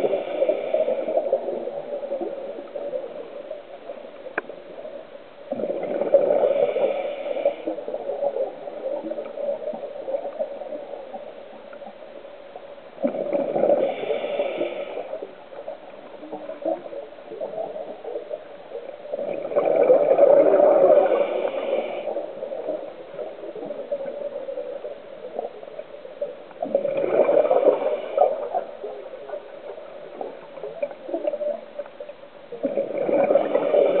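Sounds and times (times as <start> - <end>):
underwater breath bubbles: 0.0 - 3.0, 5.5 - 10.9, 13.0 - 18.2, 19.1 - 24.8, 26.6 - 31.6, 32.6 - 34.0.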